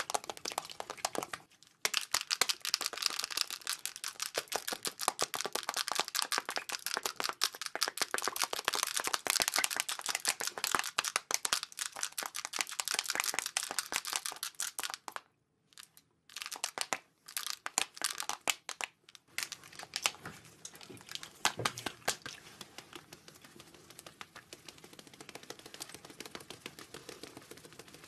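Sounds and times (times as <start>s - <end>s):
plastic packaging crinkling and clicking: 15.8s - 28.0s.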